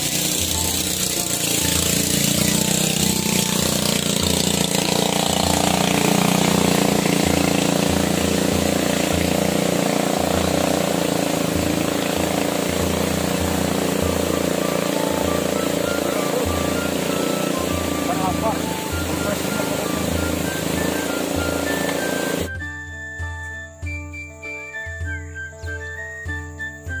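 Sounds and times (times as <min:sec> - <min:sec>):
music with pulsing bass: 0:00.0 - 0:27.0.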